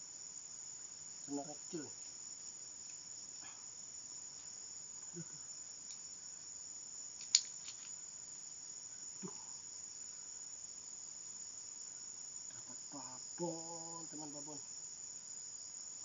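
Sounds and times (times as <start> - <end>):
insects chirring: 0.0 - 16.0
sharp click: 7.2 - 7.9.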